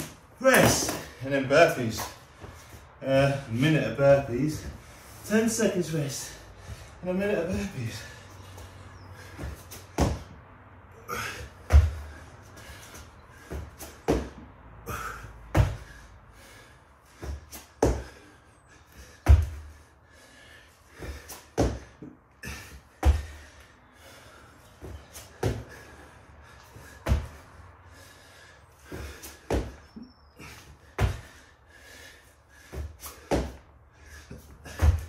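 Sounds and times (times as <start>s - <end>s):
thuds on exercise mat: 11.7s - 12.0s, 15.5s - 15.9s, 34.7s - 35.0s.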